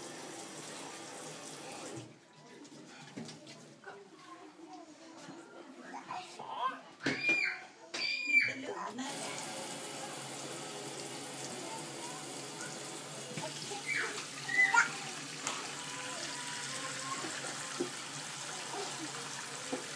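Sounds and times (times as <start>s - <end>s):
water running from a faucet: 0.0s - 2.1s, 9.0s - 19.9s.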